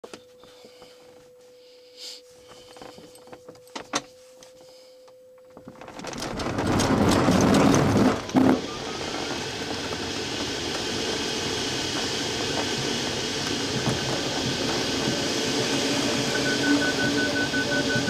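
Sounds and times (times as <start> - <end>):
rolling rumble: 5.6 - 18.0
steady single tone: 15.4 - 18.0.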